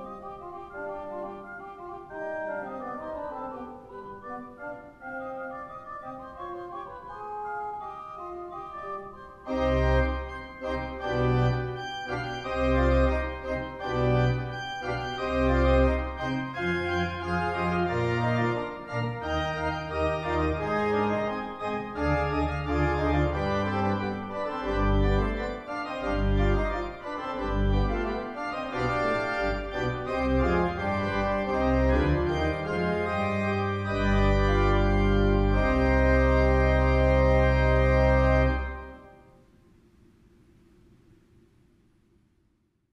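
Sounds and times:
pipe organ playing baroque music: 0.0 - 39.4
deep organ bass notes: 7.8 - 39.2.

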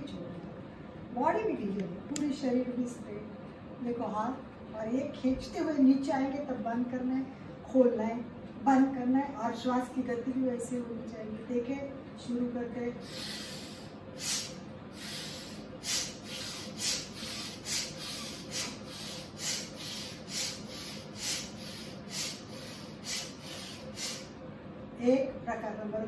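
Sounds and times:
rapid forceful nasal breathing: 13.0 - 24.4.

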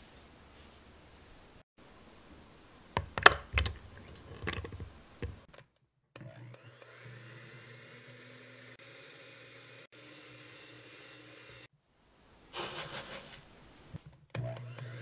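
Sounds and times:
electric hand mixer running: 6.2 - 11.7, 14.4 - 15.0.

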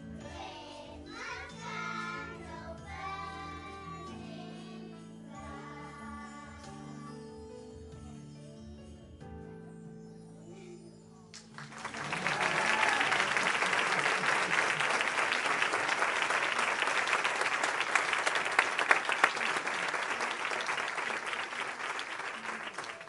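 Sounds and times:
music: 0.0 - 23.0
audience applause: 11.4 - 23.0.

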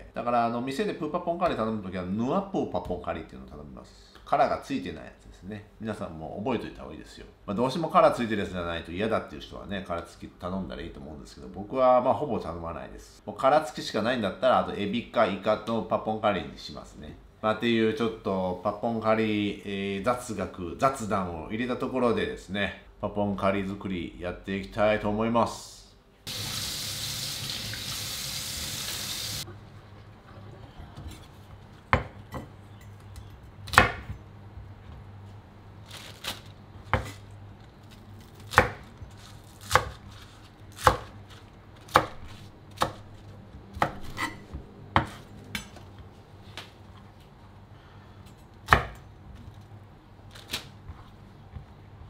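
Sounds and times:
running tap: 26.3 - 29.4
knife chopping on wooden board: 36.9 - 37.2, 40.7 - 41.2, 43.7 - 45.2.

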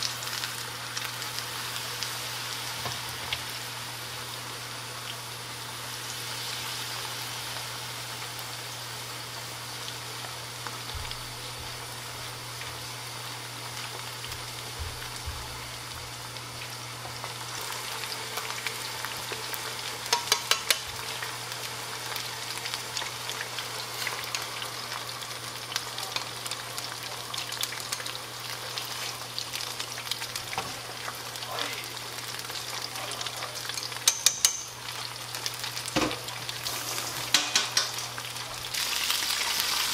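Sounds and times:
meat sizzling in hot oil: 0.0 - 39.9.

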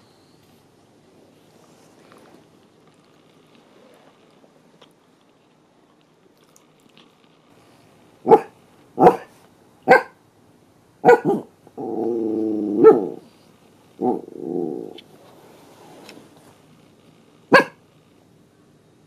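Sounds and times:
dog barking: 8.2 - 10.2, 11.0 - 11.5, 12.8 - 13.2, 17.5 - 17.8
dog growling: 11.2 - 13.4, 14.0 - 15.0.

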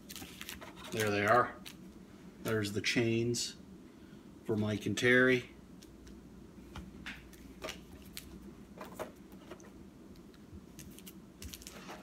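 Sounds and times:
paper poster rustling: 0.0 - 1.8, 10.8 - 12.0.

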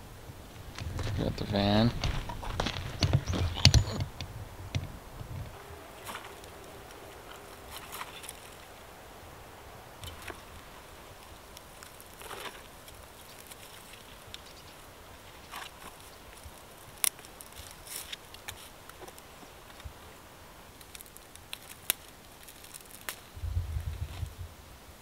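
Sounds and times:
twigs rustling and crackling: 0.4 - 24.4
twigs snapping: 4.7 - 9.0, 9.9 - 20.0, 20.6 - 24.0.

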